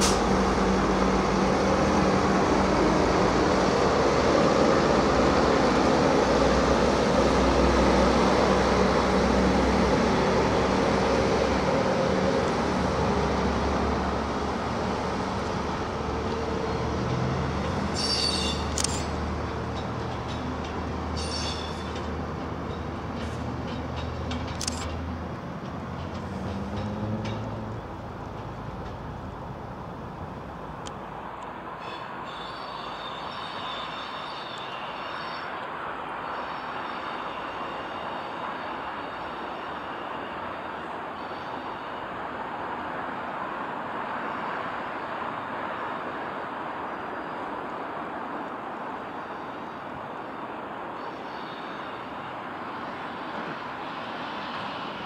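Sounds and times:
diesel train rumbling: 0.0s - 55.0s
high-pitched wheel squeal: 17.9s - 18.7s, 21.2s - 21.9s, 31.8s - 35.5s.

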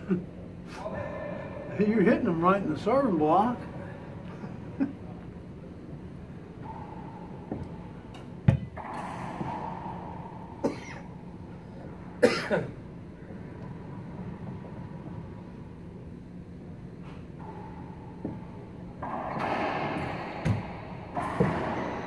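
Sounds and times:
racquetball echoing cracks: 5.8s - 16.2s, 17.3s - 22.0s.

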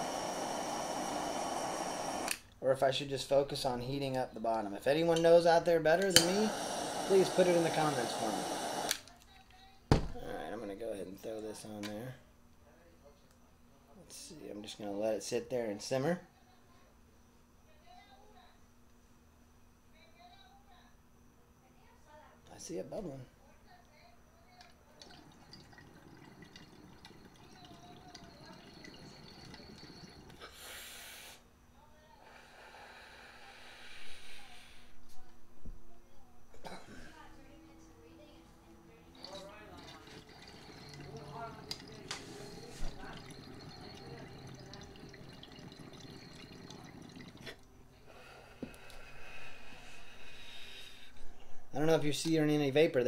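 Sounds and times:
water bubbling in glass pipe: 25.0s - 30.4s, 39.1s - 47.7s
small drips and pops: 39.2s - 47.7s.

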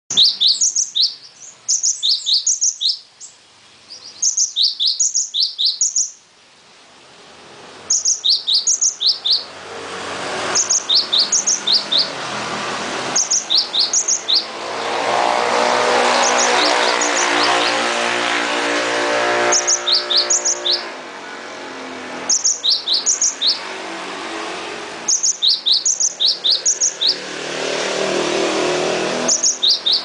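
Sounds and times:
bird chirping: 0.1s - 6.2s, 7.8s - 9.5s, 10.4s - 12.4s, 13.0s - 21.0s, 22.2s - 23.7s, 25.0s - 27.4s, 28.5s - 30.0s
motor vehicle engine: 8.9s - 30.0s.

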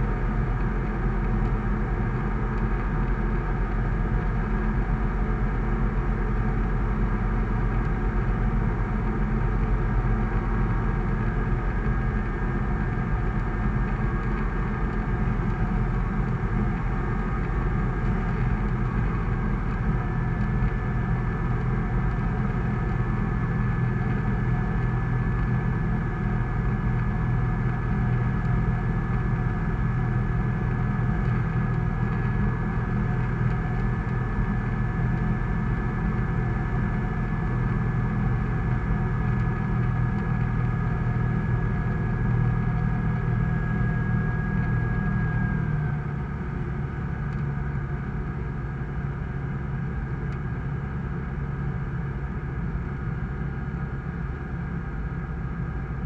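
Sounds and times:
aircraft engine and propeller: 0.0s - 56.0s.

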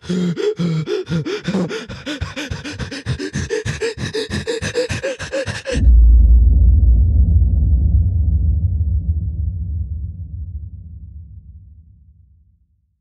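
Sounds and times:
person wheezing with laughter: 0.0s - 5.9s
loud low rumble: 5.2s - 12.0s.

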